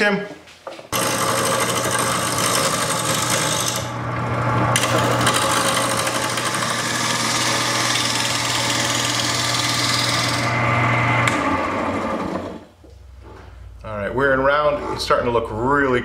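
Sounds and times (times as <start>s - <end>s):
lathe motor hum: 1.0s - 12.7s.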